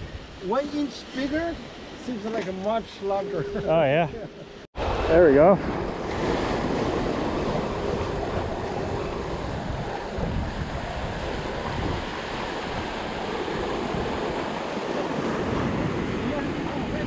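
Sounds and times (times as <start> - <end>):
surf washing against rocks: 0.0 - 3.2, 4.8 - 17.0
wind buffeting microphone: 4.8 - 17.0.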